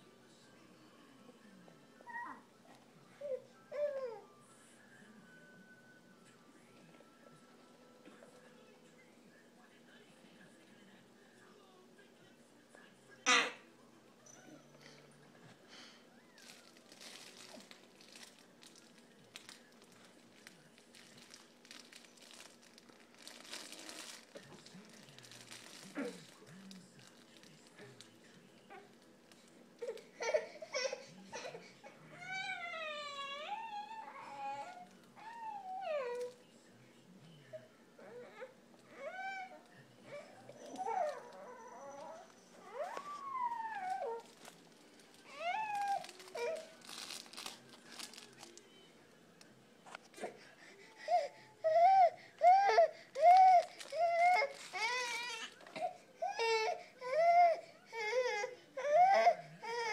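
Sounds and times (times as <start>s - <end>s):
infant crying: 29.8s - 36.3s, 38.0s - 44.4s, 45.2s - 47.5s, 50.2s - 59.9s.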